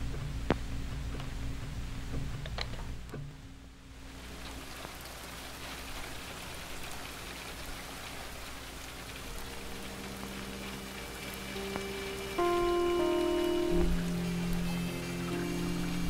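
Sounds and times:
steady rain: 0:00.0 - 0:16.0
faint held musical notes: 0:08.4 - 0:16.0.

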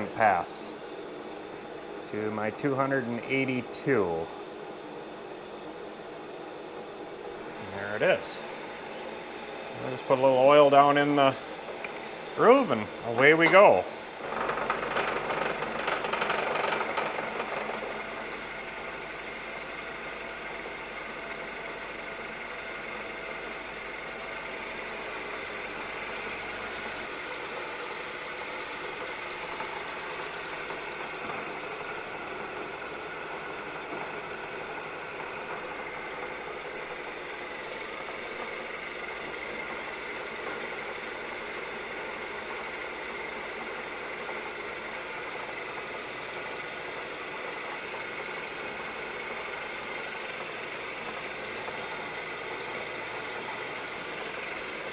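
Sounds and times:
milling machine spindle humming: 0:00.0 - 0:54.9.

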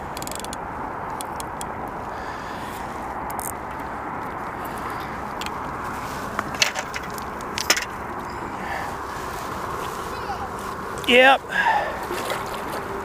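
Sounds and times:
outdoor background rush: 0:00.0 - 0:13.0.

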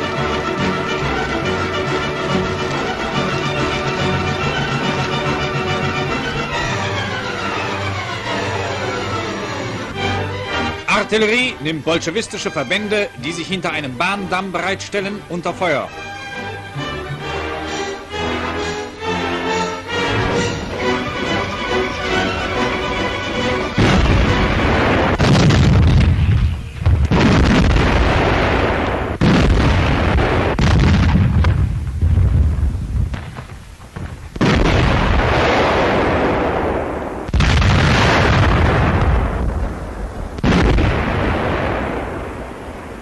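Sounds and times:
artillery guns firing: 0:23.2 - 0:43.0.

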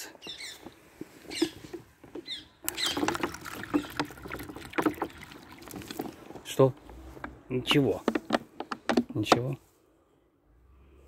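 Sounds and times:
water pouring and splashing: 0:02.6 - 0:07.2.

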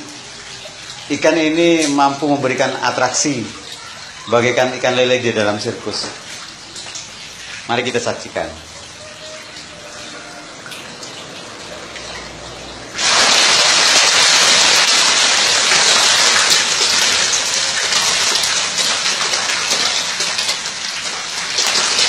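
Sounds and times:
steady water hiss: 0:00.0 - 0:22.0
fish splashing at water surface: 0:08.6 - 0:22.0.

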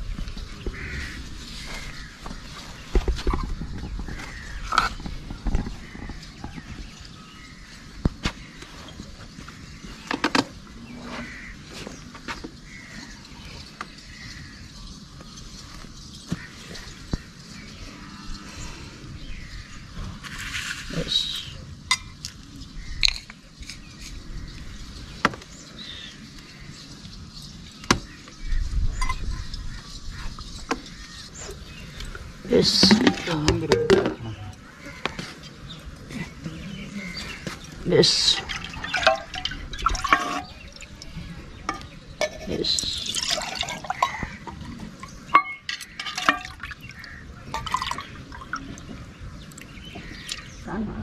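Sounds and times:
steel bowls and plates clinking: 0:32.7 - 0:34.6, 0:38.2 - 0:46.8
liquid pouring and splashing: 0:38.1 - 0:49.0.

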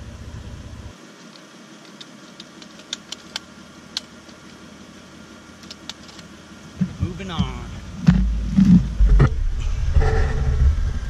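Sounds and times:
truck engine idling: 0:00.0 - 0:01.0, 0:02.4 - 0:11.0
gear clicks and taps: 0:01.2 - 0:04.6, 0:05.6 - 0:08.2.

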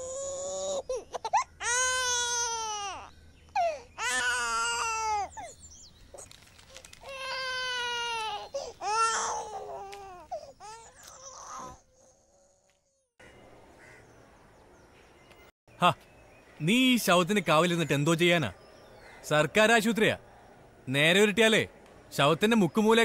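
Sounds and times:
small child crying: 0:00.0 - 0:05.5, 0:07.0 - 0:11.8.

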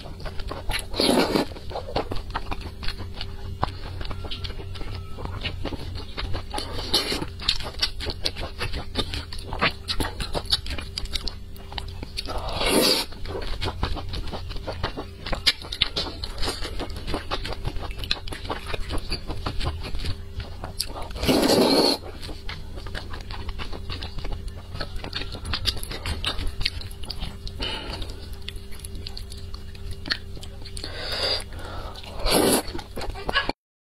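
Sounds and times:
wet chewing and mouth clicks: 0:00.0 - 0:33.5
loud slurps: 0:21.2 - 0:22.0.

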